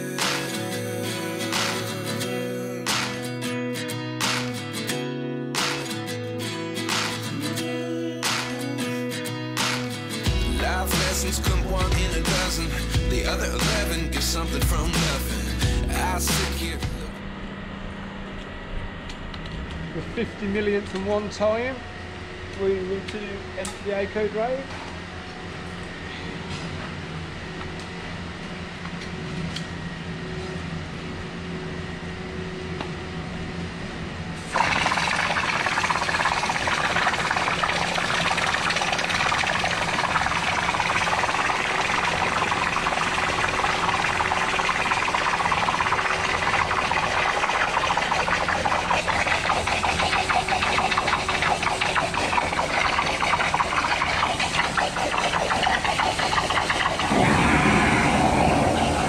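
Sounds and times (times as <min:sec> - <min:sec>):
pressure washer engine running: 0:10.3 - 0:17.1, 0:34.5 - 0:59.0
high-pressure water jet hissing: 0:34.5 - 0:59.0.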